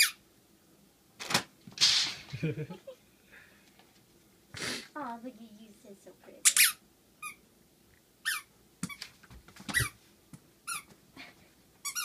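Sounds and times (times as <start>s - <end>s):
squeaky dog toy squeaks: 0.0s - 0.2s, 6.4s - 7.4s, 8.2s - 9.0s, 9.7s - 10.0s, 10.6s - 10.9s.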